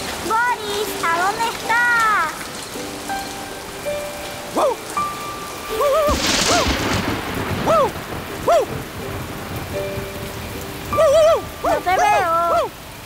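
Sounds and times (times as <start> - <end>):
rain falling: 0.0 - 13.0
thunder clap and rumble: 5.8 - 12.0.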